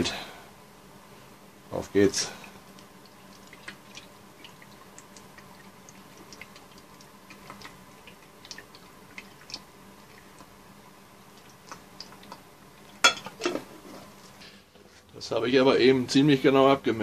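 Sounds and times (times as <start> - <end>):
low steady hum: 0.0 - 17.0
small ticks and drips: 2.4 - 13.0.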